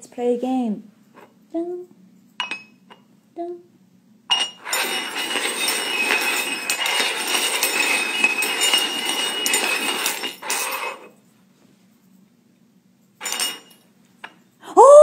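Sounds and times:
metal cups scraping on wooden floor: 0:04.3 - 0:11.2, 0:13.2 - 0:13.8.

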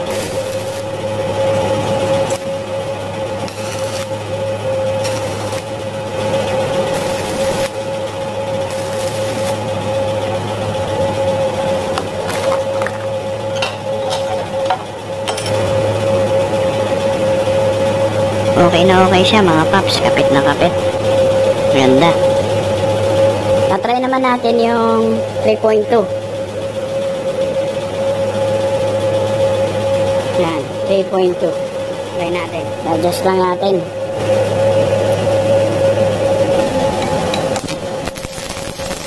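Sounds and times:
welding arc crackling hiss: 0:00.0 - 0:09.9, 0:37.5 - 0:39.0.

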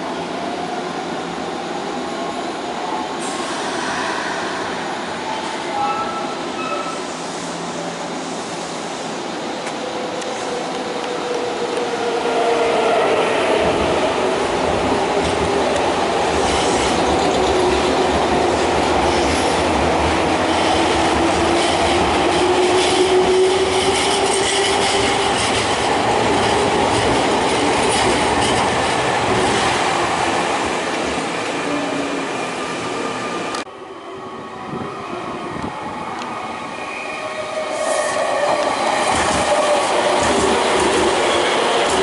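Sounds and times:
train wheels clacking: 0:38.4 - 0:42.0.

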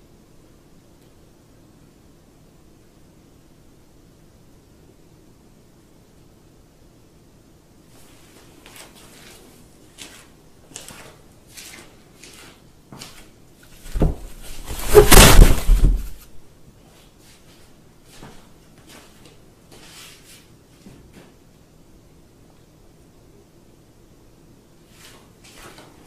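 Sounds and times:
loud rustling scuffle: 0:08.0 - 0:16.3.

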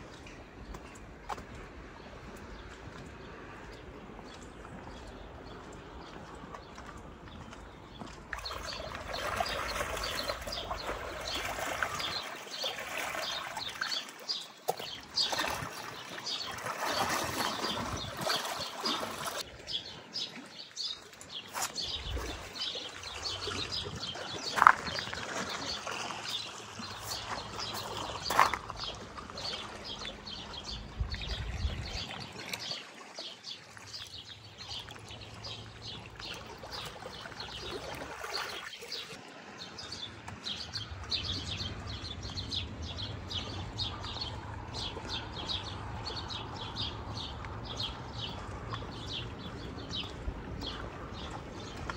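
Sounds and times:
trickling lapping water: 0:00.0 - 0:51.9.

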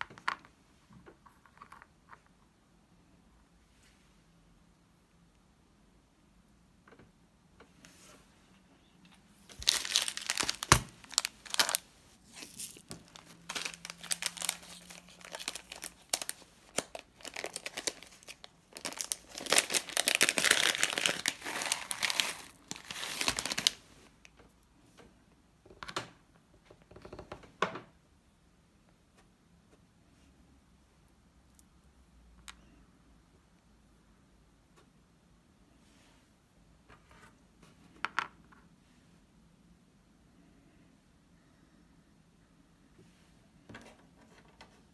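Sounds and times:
plastic packaging crinkling: 0:09.4 - 0:23.9.

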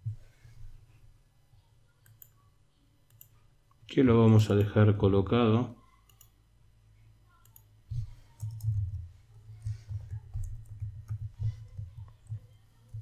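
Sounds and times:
typing on keyboard: 0:08.3 - 0:13.0.

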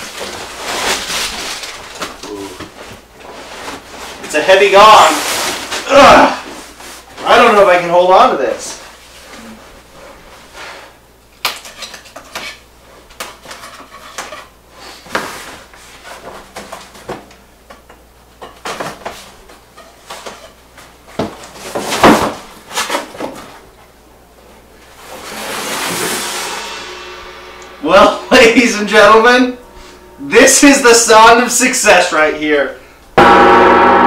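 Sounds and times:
cardboard rustling and scraping: 0:00.0 - 0:04.4, 0:05.0 - 0:05.9, 0:18.7 - 0:23.7.

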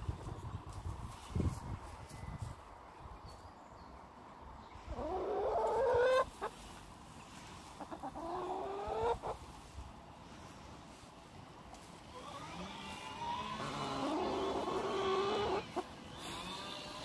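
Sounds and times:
hen clucking: 0:04.9 - 0:06.6, 0:07.6 - 0:09.5, 0:12.2 - 0:17.0.

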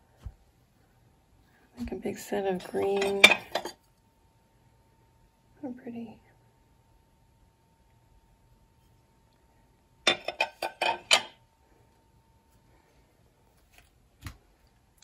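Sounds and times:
glass dishes clinking: 0:10.1 - 0:11.4.

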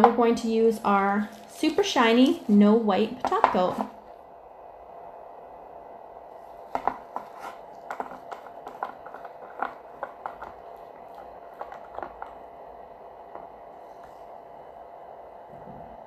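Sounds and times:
faint hum: 0:00.0 - 0:16.0.

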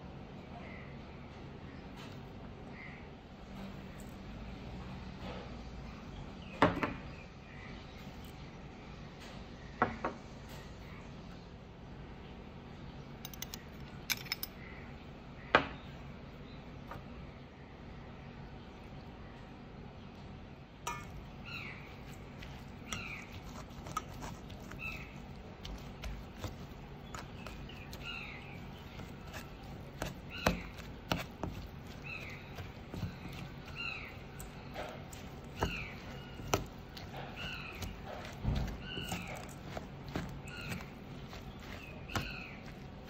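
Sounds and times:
metal spoon clinking on steel bowl: 0:20.9 - 0:21.2
bird calling: 0:21.4 - 0:43.0.

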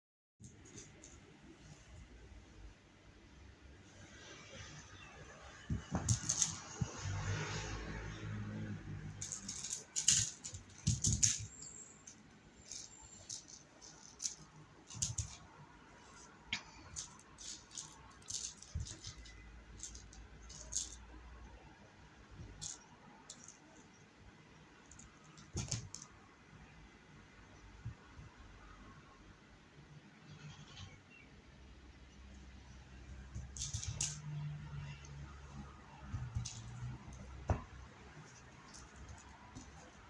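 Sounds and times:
kitten playing with toy mouse: 0:05.0 - 0:21.3, 0:22.2 - 0:24.0, 0:24.7 - 0:26.2, 0:33.0 - 0:40.0.

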